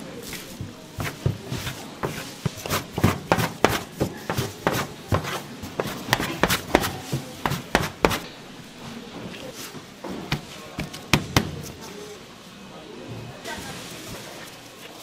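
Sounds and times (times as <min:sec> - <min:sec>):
dough scraper tapping metal table: 0:00.6 - 0:08.3.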